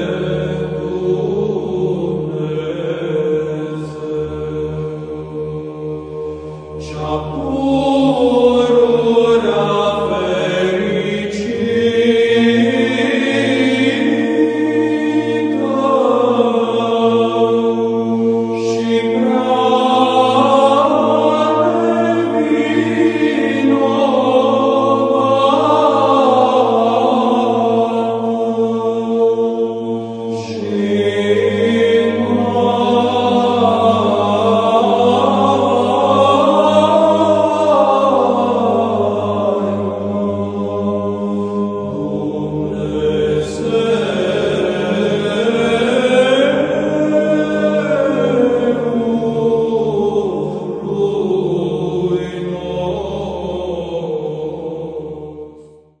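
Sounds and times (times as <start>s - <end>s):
low drone: 0.0s - 56.0s
slow chanted singing: 0.0s - 56.0s.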